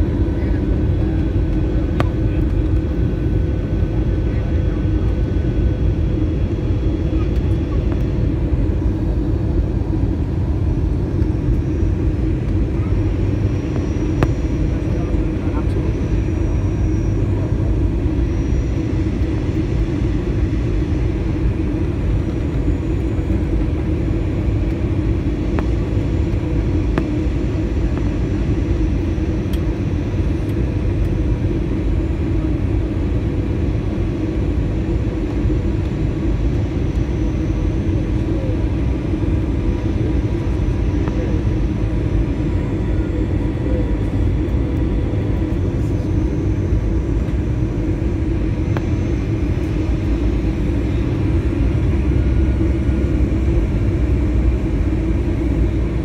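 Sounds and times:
airliner cabin engine rumble: 0.0s - 56.0s
faint steady hum: 0.0s - 56.0s.

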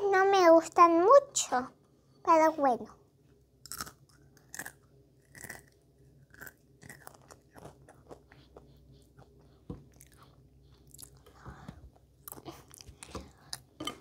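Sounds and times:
child chewing crunchy snack: 3.6s - 14.0s.

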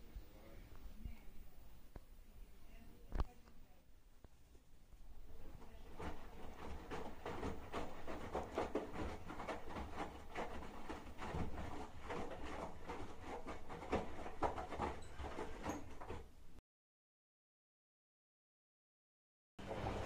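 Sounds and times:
washing machine sloshing and thudding: 5.3s - 16.6s, 19.6s - 20.0s.

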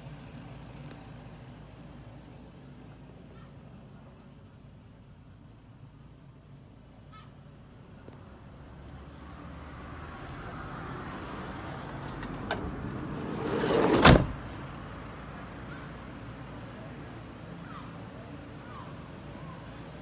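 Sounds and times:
sliding door rolling on track: 12.0s - 14.3s
door slamming shut: 13.6s - 14.5s.

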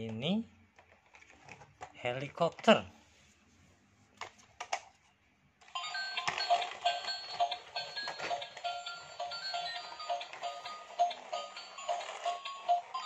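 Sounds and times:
toy playing electronic tune: 5.8s - 13.0s.

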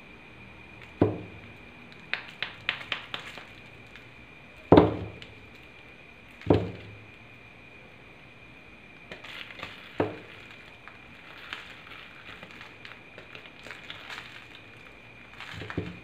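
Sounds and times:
chalk balls thudding on stone: 2.1s - 3.5s.

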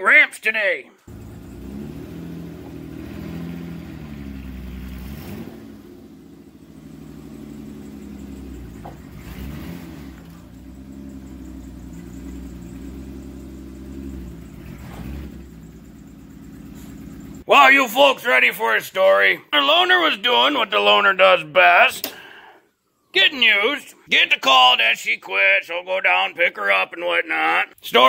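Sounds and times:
car engine revving: 1.1s - 17.5s.

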